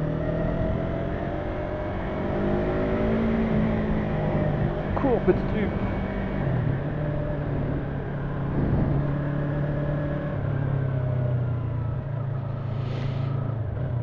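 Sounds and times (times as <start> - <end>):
motorcycle engine cruising: 0.0 - 14.0.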